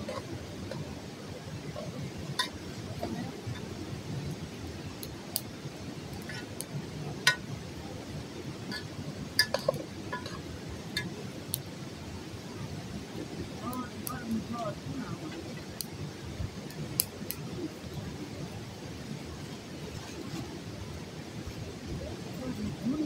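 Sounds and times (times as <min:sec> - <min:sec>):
metal utensil clinking on pot: 0:02.4 - 0:03.7, 0:08.7 - 0:10.4.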